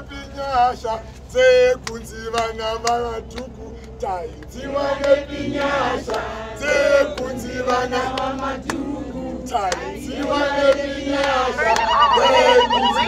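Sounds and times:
group of voices chanting: 4.6s - 13.0s.

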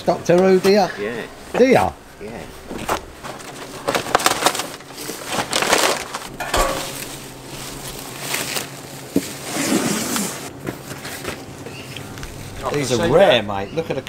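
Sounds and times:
cardboard and plastic crackling: 2.2s - 12.9s.

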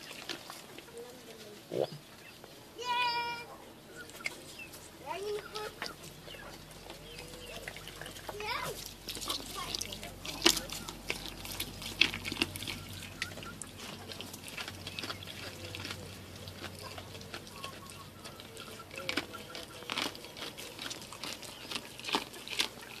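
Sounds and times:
goat splashing in water basin: 5.2s - 23.0s.

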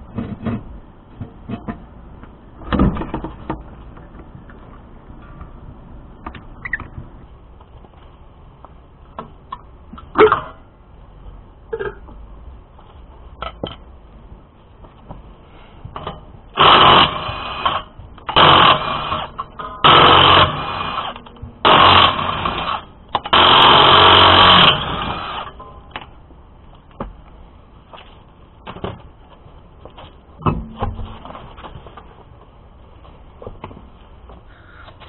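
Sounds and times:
knocks and clunks: 0.0s - 4.6s, 29.9s - 32.1s
impact wrench hammering: 16.6s - 25.8s.

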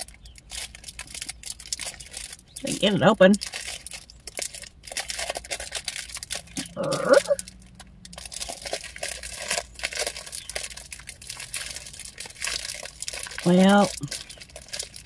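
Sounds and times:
plastic wrapper crinkling: 0.0s - 15.0s
person groaning: 6.6s - 7.4s.

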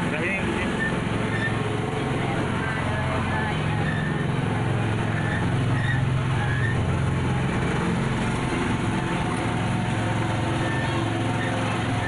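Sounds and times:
tourist train engine hum: 0.0s - 12.0s.

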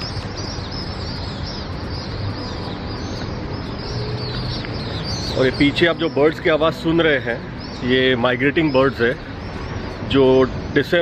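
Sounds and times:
flock of birds chirping: 0.0s - 11.0s.

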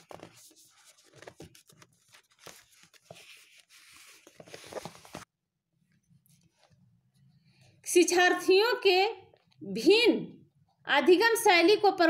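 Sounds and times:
book pages turning: 0.0s - 5.3s.

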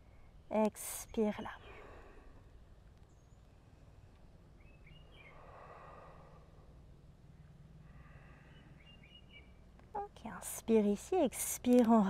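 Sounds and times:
faint bird chirps: 3.0s - 6.3s, 7.3s - 9.6s.

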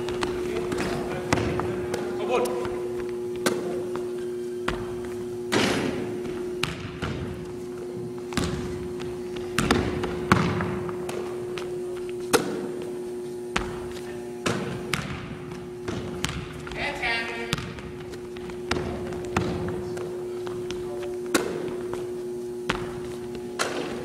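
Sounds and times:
steady hum: 0.0s - 24.0s
basketball bouncing on wooden floor: 4.7s - 7.6s, 8.2s - 11.7s, 13.5s - 16.8s, 17.4s - 22.1s, 22.7s - 23.9s.

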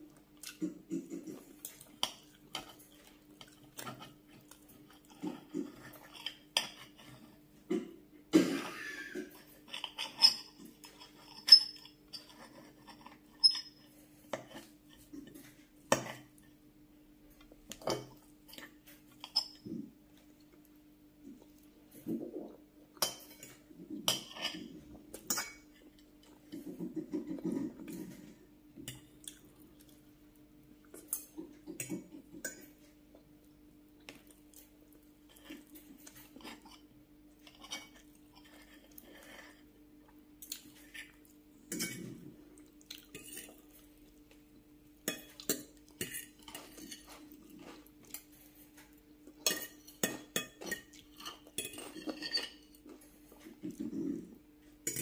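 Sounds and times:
faint steady hum: 0.0s - 55.0s
cutlery clinking on glass dishes: 49.4s - 52.9s.

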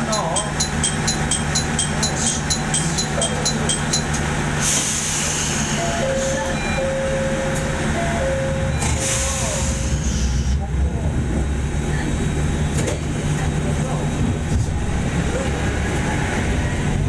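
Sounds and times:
diesel railcar engine idling: 0.0s - 17.0s
high beeps: 5.8s - 9.4s.

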